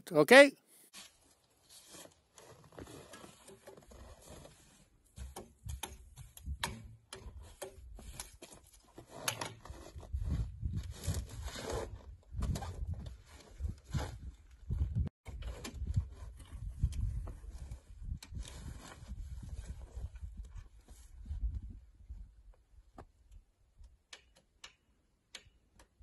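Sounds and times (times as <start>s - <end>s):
clicks knocks and scrapes on metal: 5.1s - 10.0s.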